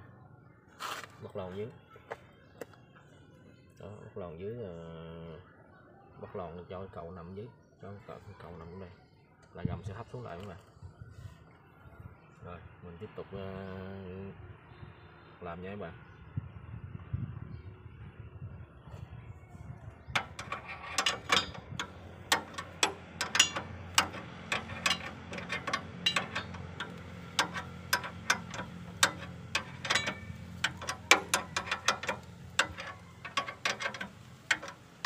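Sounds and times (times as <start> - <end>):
ratchet wrench clicking: 20.2 - 35.0.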